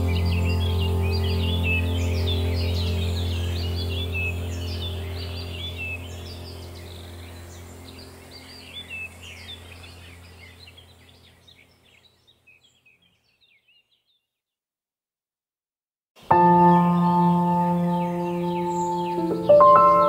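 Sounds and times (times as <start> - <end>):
low steady drone: 0.0 - 11.5, 16.3 - 20.0
birds chirping: 0.0 - 14.5, 16.2 - 20.0.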